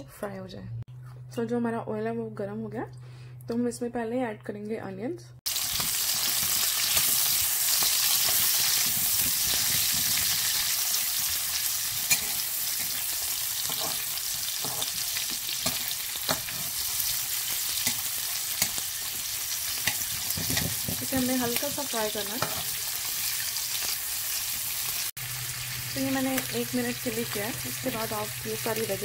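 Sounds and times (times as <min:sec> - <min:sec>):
onions sizzling in hot oil: 0:05.5 - 0:29.0
metal spatula scraping pan: 0:11.9 - 0:15.0.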